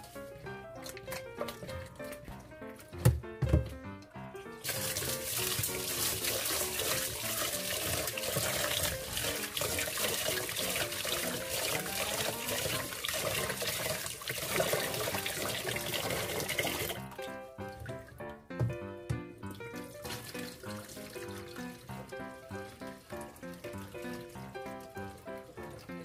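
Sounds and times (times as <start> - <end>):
background music: 0.0 - 26.0
hand swishing rice in water: 4.6 - 15.6
tap water running into pot: 4.6 - 18.8, 19.4 - 26.0.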